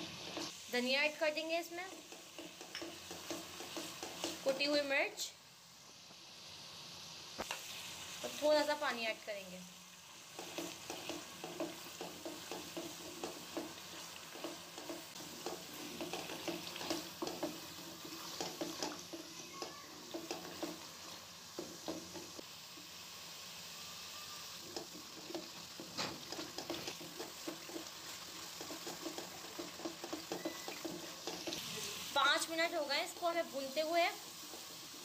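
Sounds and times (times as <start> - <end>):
spatula scraping and stirring: 0.0 - 4.9, 10.2 - 22.4, 24.5 - 35.0
sauce sizzling in oil: 0.0 - 35.0.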